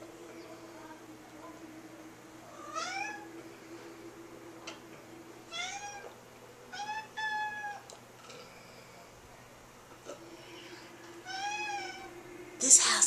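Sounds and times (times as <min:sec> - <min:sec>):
cat meowing: 0:02.5 - 0:03.3, 0:05.5 - 0:07.9, 0:11.2 - 0:12.1.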